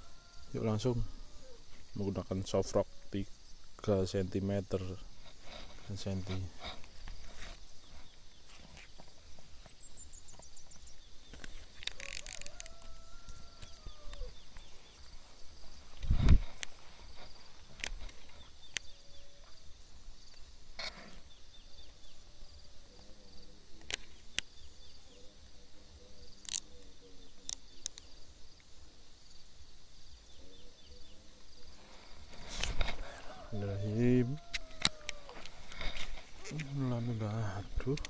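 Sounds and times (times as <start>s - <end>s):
high-pitched insect drone: 31.6s - 38.0s.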